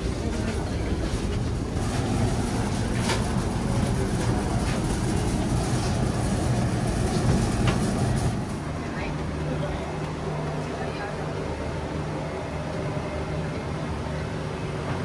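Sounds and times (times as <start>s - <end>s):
low vehicle rumble: 0.0s - 10.9s.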